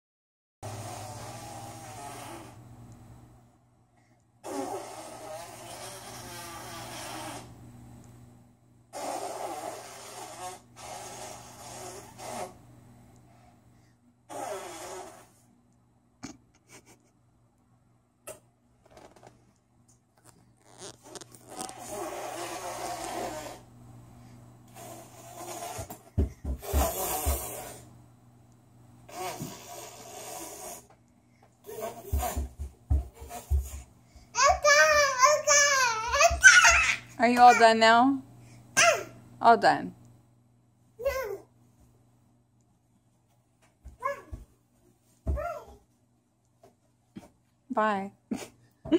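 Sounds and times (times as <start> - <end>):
toddler blowing into hands: 0.7 - 2.6, 4.4 - 7.5, 8.9 - 12.6, 14.3 - 15.4, 21.1 - 23.6, 24.7 - 27.8, 29.1 - 30.9, 31.6 - 32.6, 33.2 - 33.8
feet running in rubber boots: 31.9 - 33.9.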